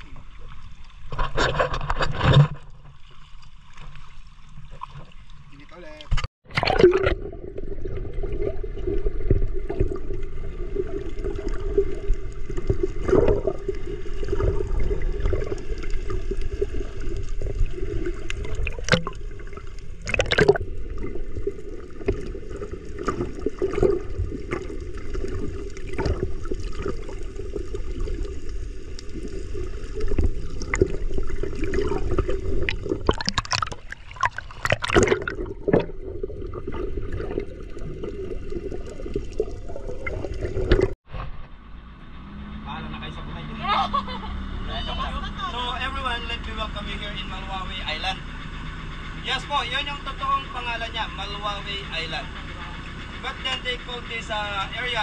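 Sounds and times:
water splashing along boat hull: 0:00.0 - 0:41.5
boat engine humming: 0:02.7 - 0:55.0
loud splashes or knocks: 0:30.2 - 0:37.4.

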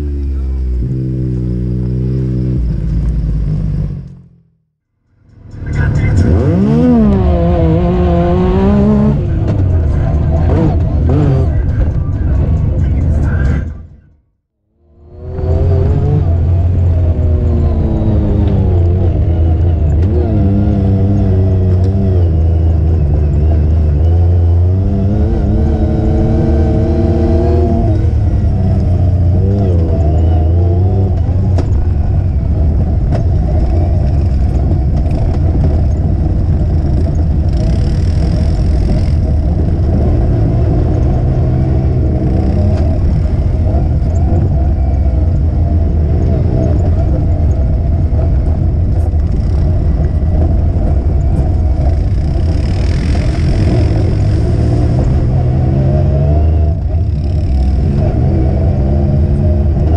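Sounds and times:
vehicle engine revving: 0:00.0 - 0:04.6, 0:05.4 - 0:13.7, 0:14.8 - 0:59.9
rush of noise: 0:14.8 - 0:59.9.

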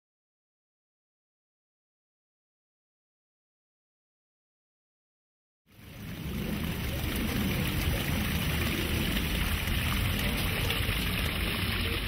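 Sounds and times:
water cascading over rocks: 0:05.7 - 0:12.0.

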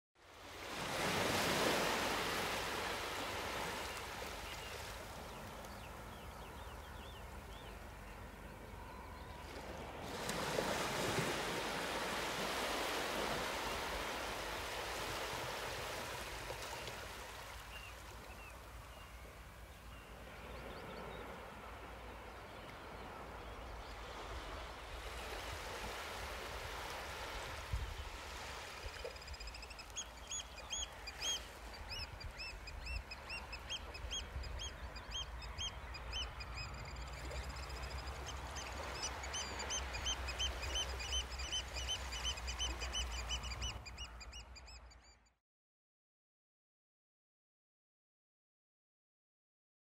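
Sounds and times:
surf washing on shore: 0:00.3 - 0:06.1, 0:09.4 - 0:18.3, 0:23.1 - 0:30.0.

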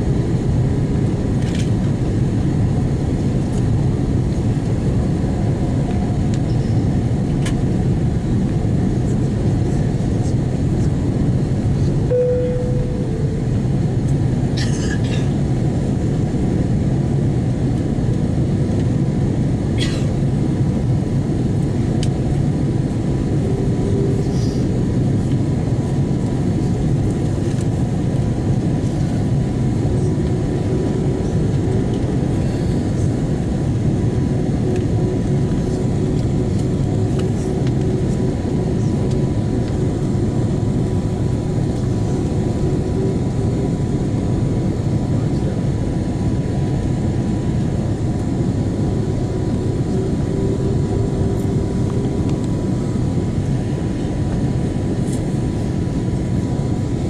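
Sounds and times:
airplane cabin roar: 0:00.0 - 0:57.0
faint steady whine: 0:00.0 - 0:57.0
short tone: 0:12.1 - 0:13.6.

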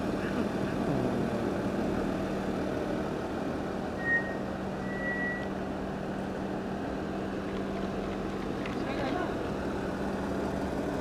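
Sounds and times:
short high beeps: 0:04.0 - 0:05.5.

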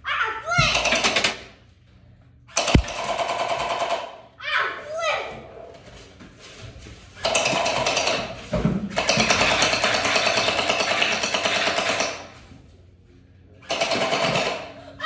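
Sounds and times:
gel blaster firing full auto: 0:02.6 - 0:04.0.

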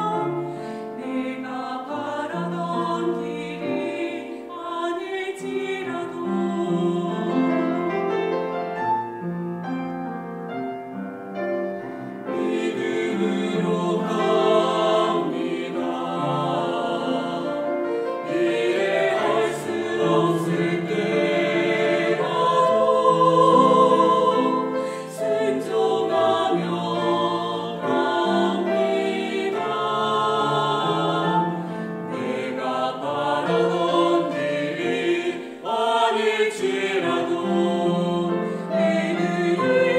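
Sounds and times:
choir singing a hymn: 0:00.0 - 0:08.8, 0:12.1 - 0:39.9.

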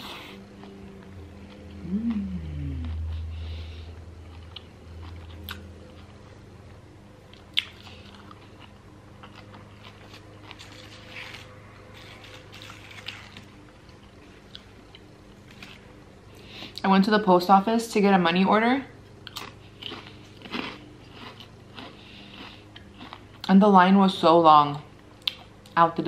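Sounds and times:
crunching and chewing chips: 0:00.0 - 0:03.6, 0:04.2 - 0:06.4, 0:07.3 - 0:16.8, 0:19.2 - 0:23.7.

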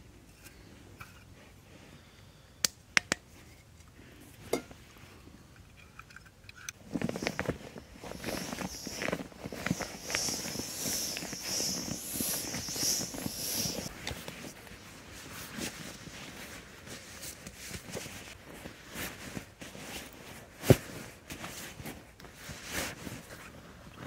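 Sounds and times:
nylon sleeping bag rustling: 0:06.8 - 0:23.8
high hiss: 0:07.0 - 0:14.6.

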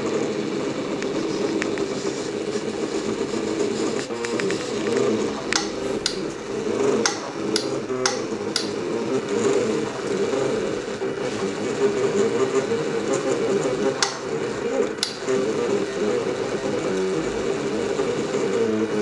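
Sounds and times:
sharp clicks: 0:04.1 - 0:08.9, 0:14.0 - 0:15.5.

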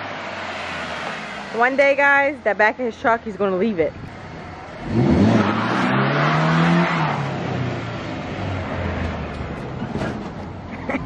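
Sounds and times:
pickup engine revving: 0:04.0 - 0:10.7.

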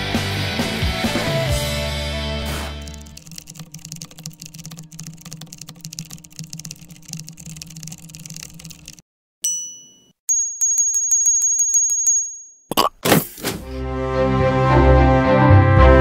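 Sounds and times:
bell ding: 0:09.4 - 0:12.7.

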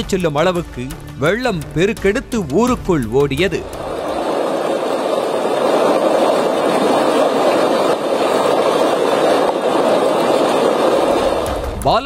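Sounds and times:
floodwater rushing: 0:03.6 - 0:11.9.

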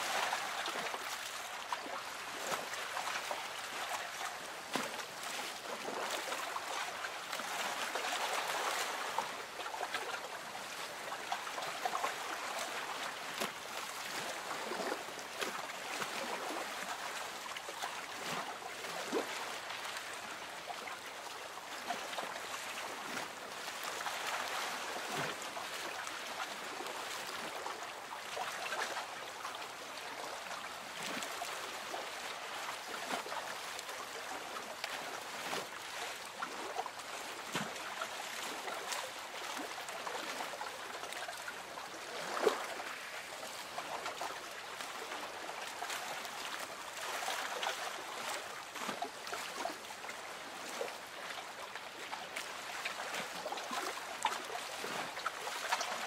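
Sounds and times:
water lapping against boat hull: 0:00.1 - 0:56.0.

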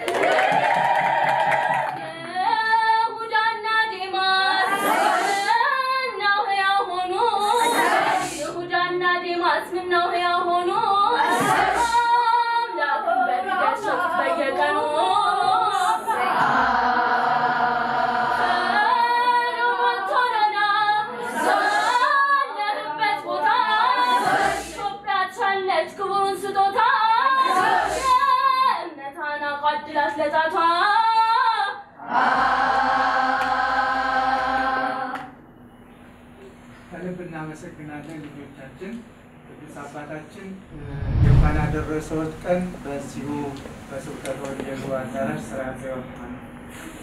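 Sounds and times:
choir of women singing a hymn: 0:01.3 - 0:28.5, 0:29.8 - 0:35.3.

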